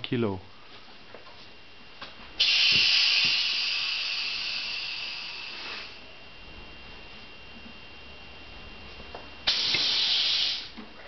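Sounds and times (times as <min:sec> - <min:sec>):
compressed air hissing: 0:02.4 - 0:06.1, 0:09.4 - 0:10.8.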